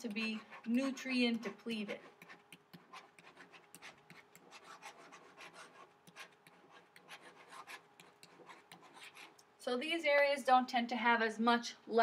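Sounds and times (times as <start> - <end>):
stylus scratching on tablet: 0.0 - 9.4.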